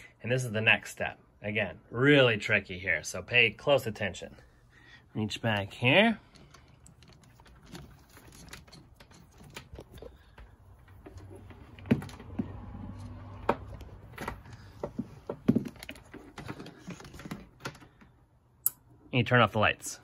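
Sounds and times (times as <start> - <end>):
clicks and knocks of power cords: 6.4 - 18.1.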